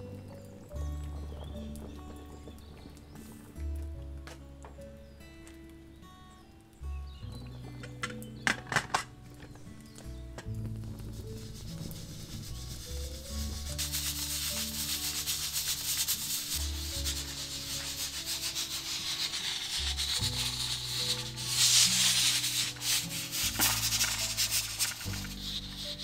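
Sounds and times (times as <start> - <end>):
background music with bass: 0.0 - 26.0
pressure cooker steam hissing: 12.1 - 26.0.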